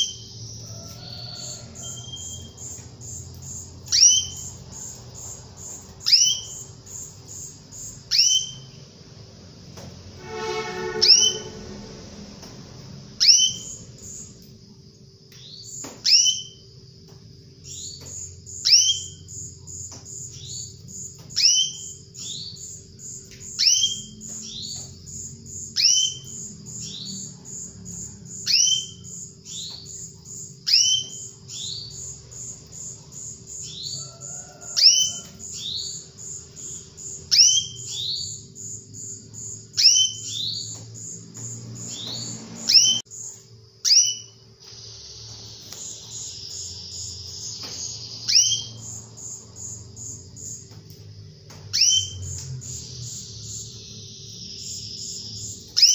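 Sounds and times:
high-pitched pulsing trill: 10.2 - 12.1
canary call notes: 10.2 - 12.2.

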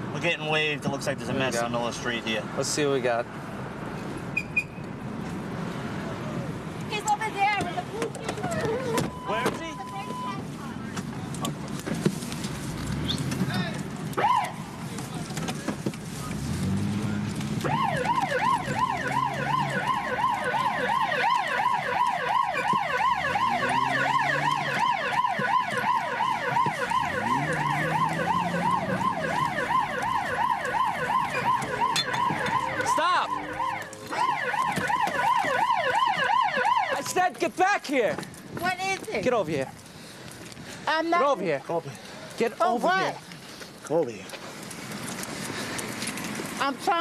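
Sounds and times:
police siren yelping: 14.2 - 14.6, 17.6 - 37.2.

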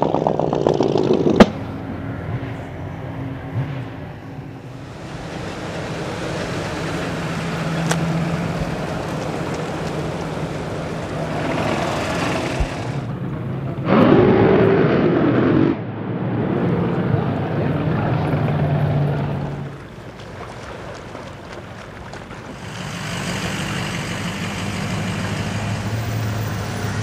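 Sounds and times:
steady engine drone: 0.0 - 27.0
racing engine revving: 4.7 - 19.7.

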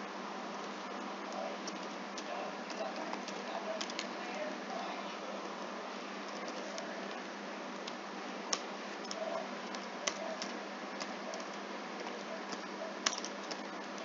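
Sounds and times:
steady hiss and low hum: 0.0 - 14.0
keyboard keys clicking: 7.8 - 14.0.

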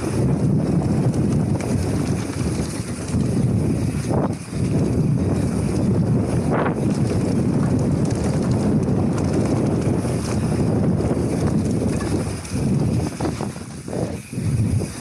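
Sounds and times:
tyres rumbling over dirt: 0.0 - 15.0
wind buffeting microphone: 0.0 - 15.0.

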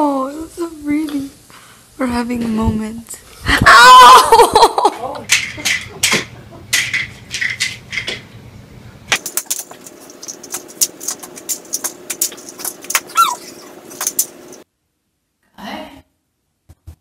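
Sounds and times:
short squeak: 13.1 - 13.7.

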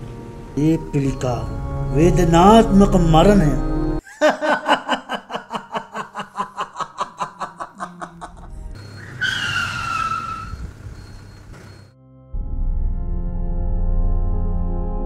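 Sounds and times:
soft ambient music: 0.0 - 4.0
repeated laughter: 4.0 - 9.5
tyres squealing: 7.7 - 11.8
vehicle road noise: 8.3 - 11.9.

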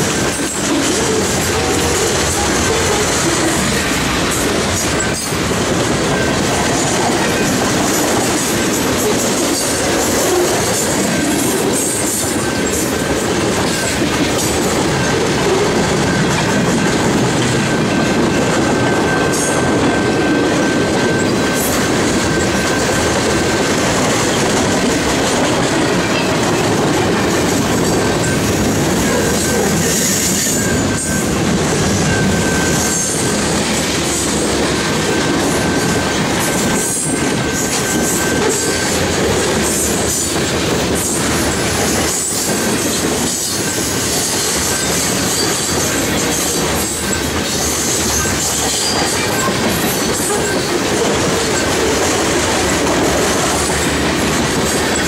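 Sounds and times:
steel wheels clattering on rails: 0.0 - 55.0
high wheel squeal: 18.6 - 24.4, 25.8 - 40.4, 41.0 - 55.0.

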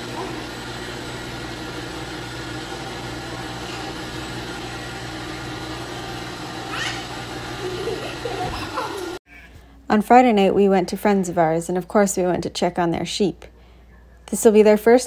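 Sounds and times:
mechanical equipment hum: 0.0 - 9.2.

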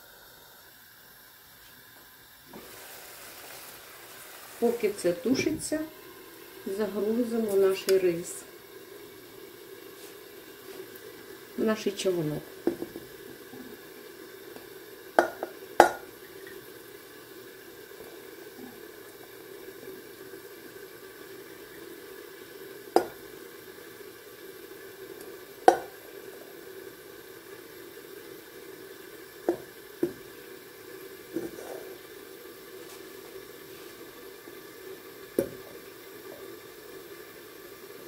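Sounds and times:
food sizzling in a pan: 0.0 - 38.0
plastic spatula knocking on pots: 15.2 - 16.0, 25.7 - 25.9.

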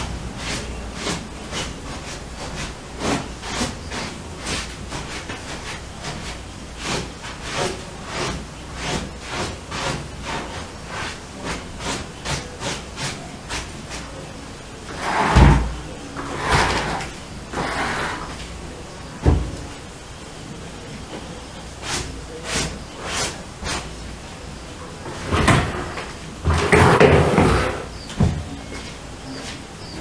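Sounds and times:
scraping and shuffling: 0.0 - 20.0, 20.8 - 30.0
brushing strokes: 14.9 - 18.5, 21.8 - 24.0
heavy thump: 19.2 - 19.7.

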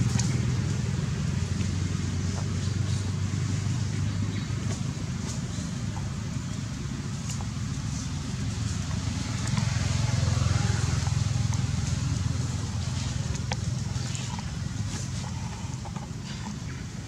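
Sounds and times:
low motor rumble: 0.0 - 17.0.

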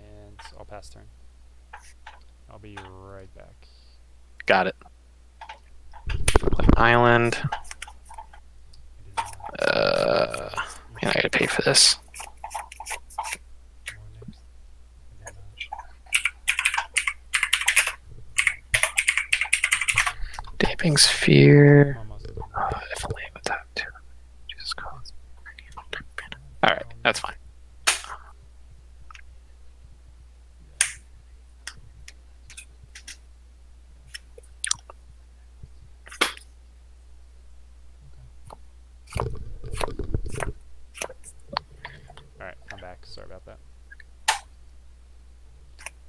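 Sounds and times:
rapid typing on a keyboard: 15.7 - 20.2
low hum: 16.8 - 46.0
cards clicking and snapping: 27.8 - 28.2, 32.5 - 33.2, 39.1 - 41.3.

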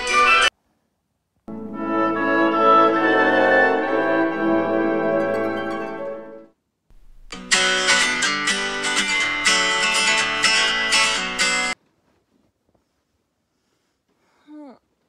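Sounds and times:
strummed guitar chords: 1.5 - 11.8.

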